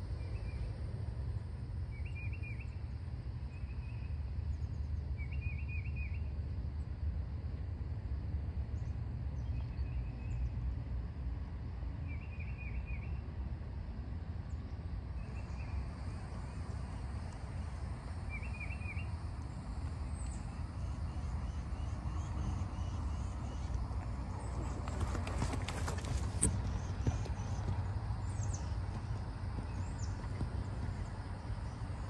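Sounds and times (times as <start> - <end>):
steady low rumble: 5.8 - 32.0
songbird chirping: 14.5 - 32.0.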